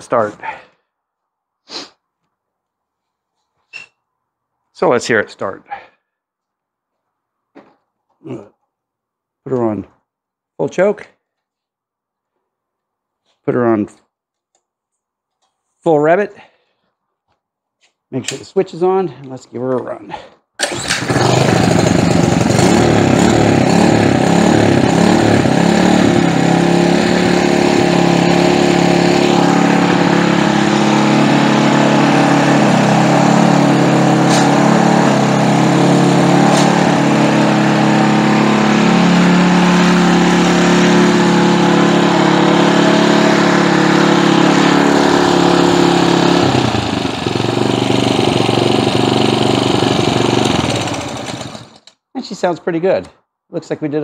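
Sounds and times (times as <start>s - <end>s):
tiller engine running loudly: 20.6s - 51.9s
tiller engine pull-started: 20.6s - 52.0s.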